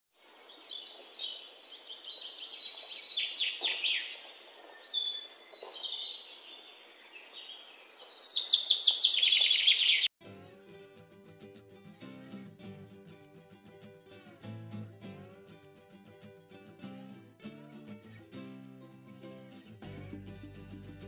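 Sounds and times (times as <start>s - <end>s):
songbird chirping and trilling: 0.4s - 10.1s.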